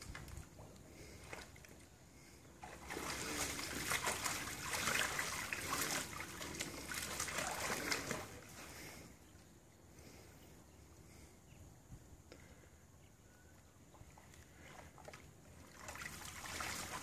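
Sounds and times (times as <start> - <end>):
water splashing in paddle pool: 0.0 - 8.9, 14.0 - 17.0.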